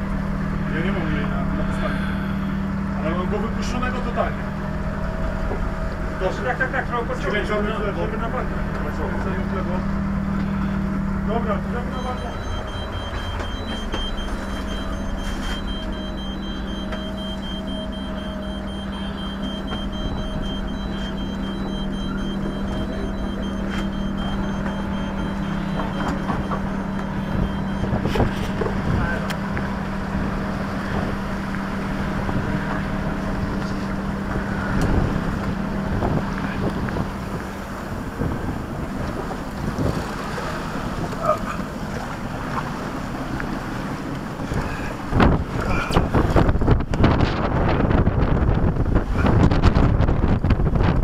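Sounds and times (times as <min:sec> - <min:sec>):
low engine drone: 0:00.0 - 0:51.0
rapid high electronic beeping: 0:11.9 - 0:28.3
wind and sea hiss: 0:34.1 - 0:51.0.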